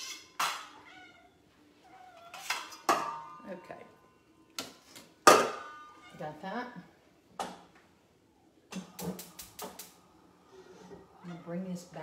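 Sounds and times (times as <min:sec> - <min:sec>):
metal utensils clanking on pot: 0:00.0 - 0:00.7, 0:02.3 - 0:03.8.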